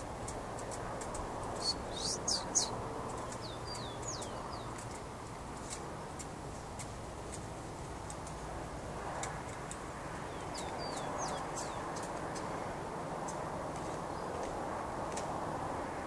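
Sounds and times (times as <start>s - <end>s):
sparrows chip calls: 0.0s - 5.0s, 10.2s - 12.6s
down-slurred whistled bird notes: 1.6s - 2.7s.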